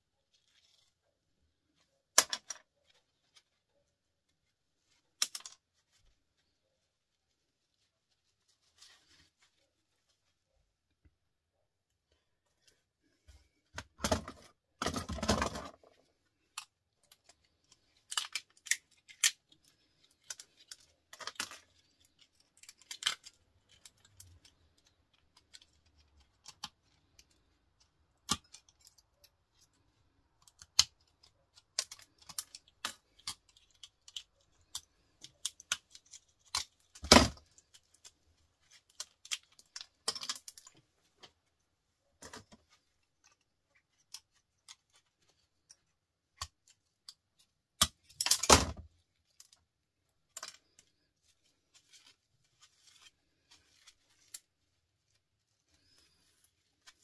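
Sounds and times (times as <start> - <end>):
clicks and clinks of scrap parts: 47.8 - 48.8.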